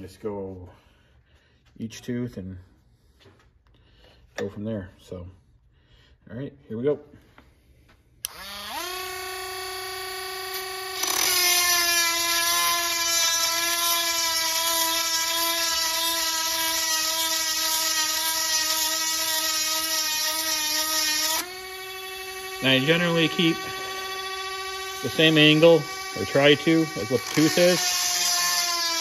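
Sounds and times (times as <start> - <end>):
rotary grinder motor whine: 8.3 - 29.0.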